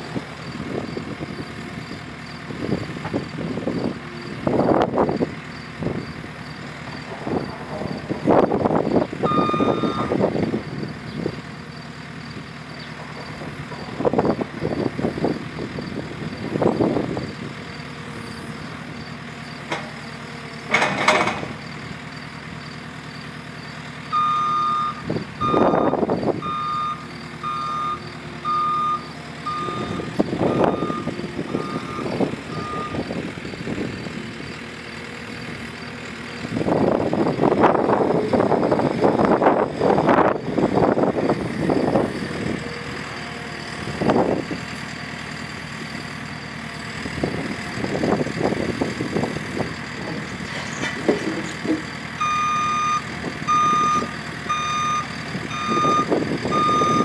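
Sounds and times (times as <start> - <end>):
diesel engine running: 0.0 - 57.0
reverse alarm beeping: 9.2 - 10.2, 24.1 - 33.1, 52.2 - 57.0.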